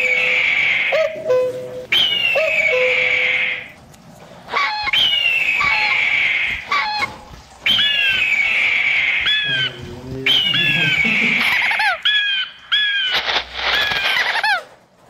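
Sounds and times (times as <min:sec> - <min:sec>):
bird chirps: 0:00.0 - 0:03.7, 0:04.5 - 0:14.5
harsh bird screech: 0:11.4 - 0:14.7.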